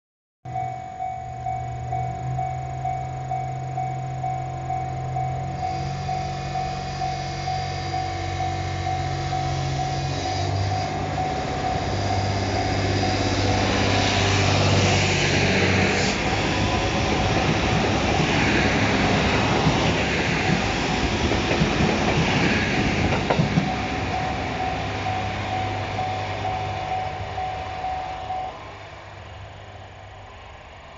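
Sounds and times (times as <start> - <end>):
level-crossing warning tone: 0.4 - 30.9
diesel railcar engine accelerating: 0.5 - 30.9
train wheels rattling over rail joints: 5.6 - 28.0.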